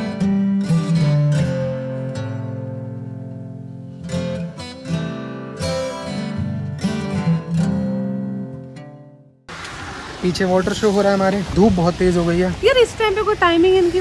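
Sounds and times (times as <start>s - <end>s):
acoustic guitar strumming chords: 0.0s - 9.5s.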